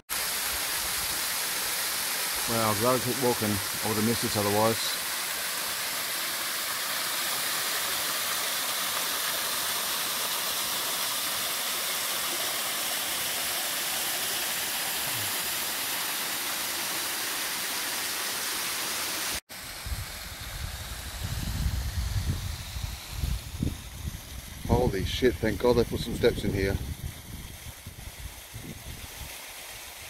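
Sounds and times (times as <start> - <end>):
water cascading into pool: 0.1 - 26.1, 26.9 - 30.0.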